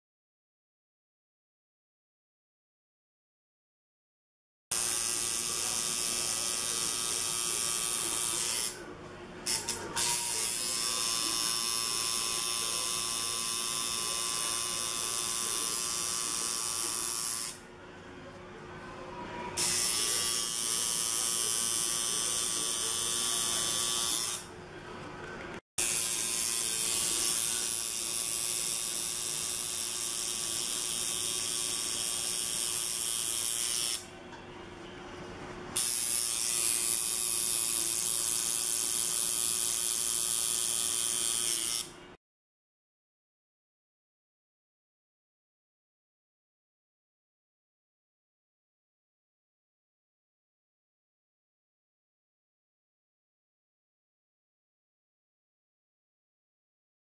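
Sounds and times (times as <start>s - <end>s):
tattoo machine buzzing: 4.7s - 8.8s, 9.4s - 17.6s, 19.6s - 24.5s, 25.8s - 34.1s, 35.8s - 42.0s.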